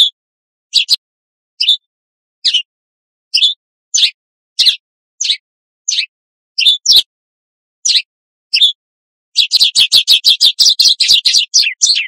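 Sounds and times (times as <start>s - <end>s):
finch chirping: 0.0s - 1.0s, 1.6s - 2.7s, 3.3s - 7.1s, 7.8s - 8.8s, 9.4s - 12.0s.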